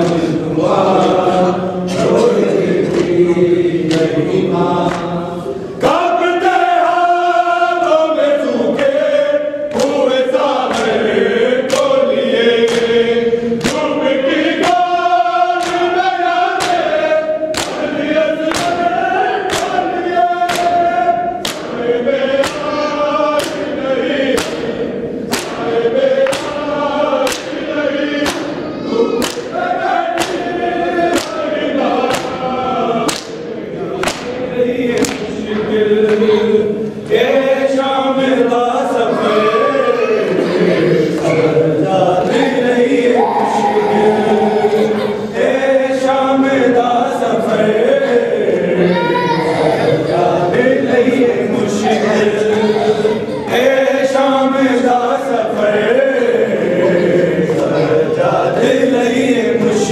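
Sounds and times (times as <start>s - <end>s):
men chanting a lament: 0.0s - 59.9s
hands slapping chests: 9.7s - 10.0s, 11.7s - 12.0s, 12.6s - 13.0s, 13.6s - 13.9s, 15.6s - 16.0s, 16.6s - 18.8s, 19.5s - 19.8s, 20.4s - 20.8s, 21.4s - 21.8s, 23.4s - 23.7s, 24.3s - 24.7s, 25.3s - 27.6s, 29.2s - 29.5s, 30.2s - 30.5s, 31.1s - 32.4s, 33.1s - 35.3s.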